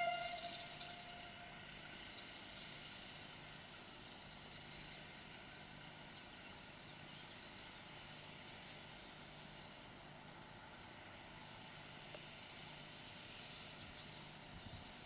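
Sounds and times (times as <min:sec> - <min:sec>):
steam whistle: 0:00.0 - 0:02.2.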